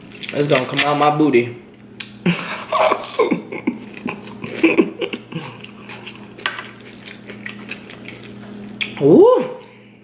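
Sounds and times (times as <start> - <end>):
chewing with wet mouth clicks: 0.1 - 0.6, 2.0 - 2.2, 5.1 - 9.0
short hummed vocal sounds: 2.1 - 6.3.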